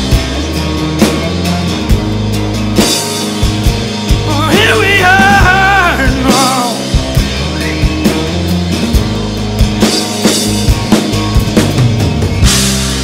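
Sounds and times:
live band instrumental: 0.0 - 13.0
drum hits: 1.1 - 13.0
wordless sung vocal: 4.2 - 8.6.

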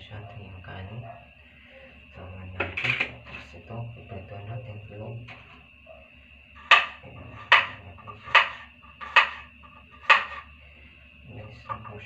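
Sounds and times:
knife chopping garlic on board: 6.6 - 10.5.

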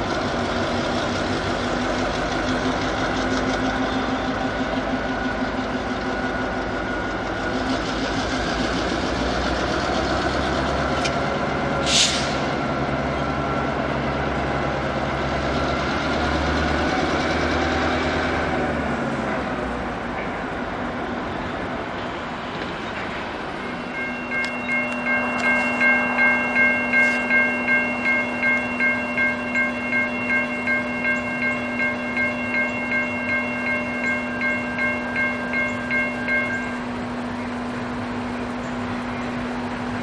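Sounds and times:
diesel locomotive engine: 0.0 - 40.0
brief hiss: 11.9 - 12.4.

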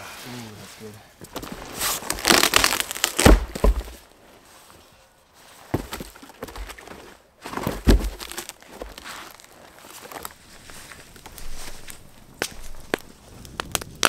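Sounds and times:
boot kicking a stump: 1.2 - 4.1, 5.6 - 10.3
rotten wood cracking and crunching: 1.2 - 4.4, 5.6 - 14.0.

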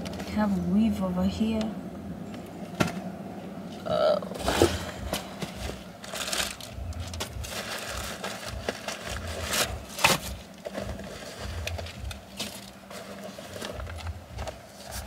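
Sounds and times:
items clicking and knocking: 4.4 - 15.0.

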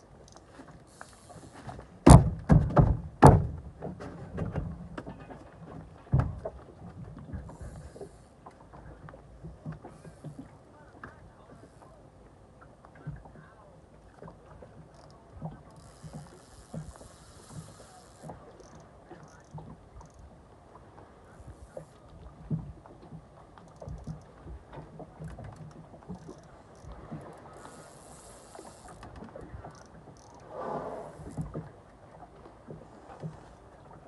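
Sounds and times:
knocks and thumps: 2.1 - 4.8
water splashing: 12.9 - 34.0.

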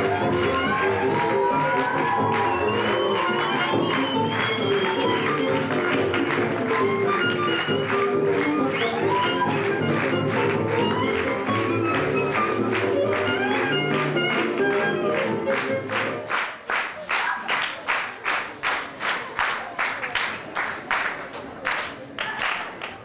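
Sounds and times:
music playing: 0.0 - 16.5
audience clapping in unison: 0.0 - 23.0.

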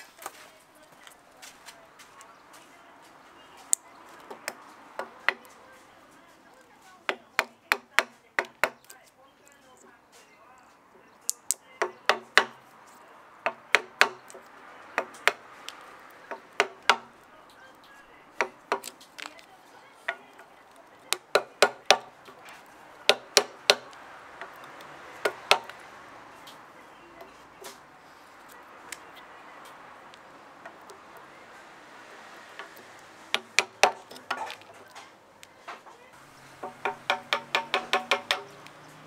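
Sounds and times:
hammer striking chisel handle: 7.1 - 8.9, 11.3 - 12.6, 13.4 - 15.4, 16.3 - 17.1, 18.4 - 19.3, 21.1 - 22.4, 23.0 - 24.6, 25.2 - 25.8, 32.5 - 34.7, 36.6 - 38.8.

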